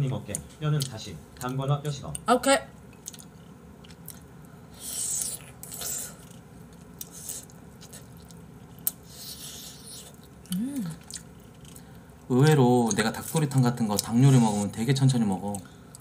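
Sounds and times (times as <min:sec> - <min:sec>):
person chewing food: 0:02.9 - 0:12.0
person humming: 0:10.5 - 0:11.0.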